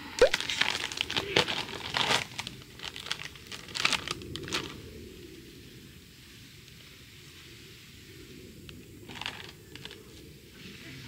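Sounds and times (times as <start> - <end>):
plastic snack bag crinkling: 0.2 - 4.8.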